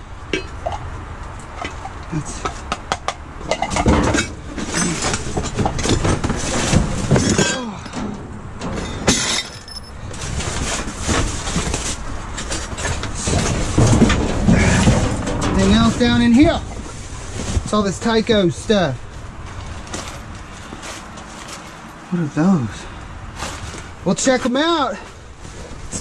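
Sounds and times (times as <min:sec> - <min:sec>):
knocks and clatters: 0:00.3 - 0:18.1, 0:19.0 - 0:22.0
junk shifted in metal dumpster: 0:03.4 - 0:22.1, 0:22.7 - 0:26.0
cardboard rustling: 0:10.2 - 0:17.8.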